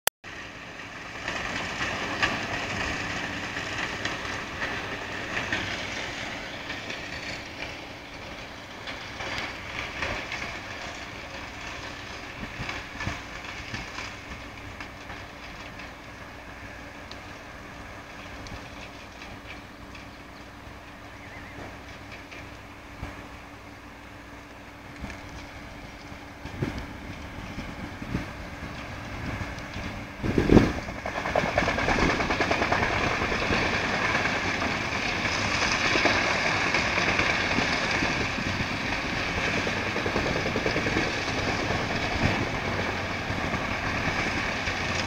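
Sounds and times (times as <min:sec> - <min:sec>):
wood chipper running: 0:00.2 - 0:45.0.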